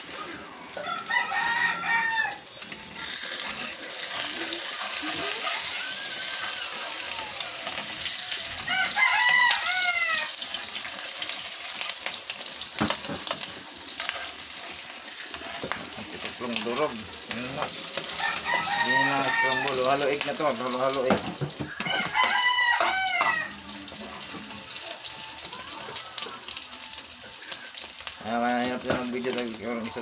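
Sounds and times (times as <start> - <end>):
egg sizzling in oil: 0.0 - 30.0
rooster crowing: 0.8 - 2.5, 5.0 - 10.4, 18.0 - 20.1, 21.6 - 23.9
metal spatula stirring: 13.2 - 19.8
utensil knocking on pan: 21.0 - 23.3.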